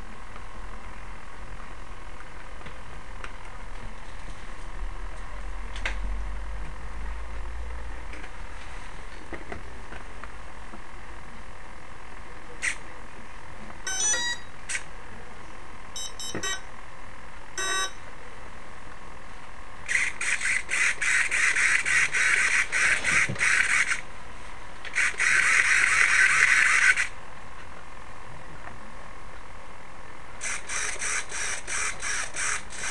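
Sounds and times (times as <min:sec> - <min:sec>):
motor controller beeping: 0:13.9 - 0:14.8, 0:16.0 - 0:16.7, 0:17.6 - 0:18.0, 0:25.0 - 0:27.1, 0:30.4 - 0:32.9
servo buzzing: 0:19.9 - 0:24.0, 0:24.9 - 0:27.1, 0:30.4 - 0:32.9.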